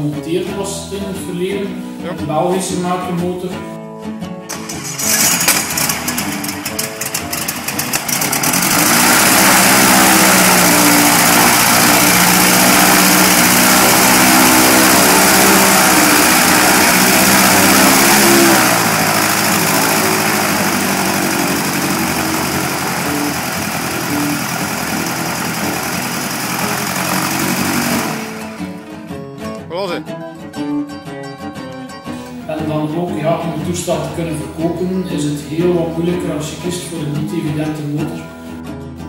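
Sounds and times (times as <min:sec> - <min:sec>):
aircraft engine running: 0:04.5 - 0:29.1.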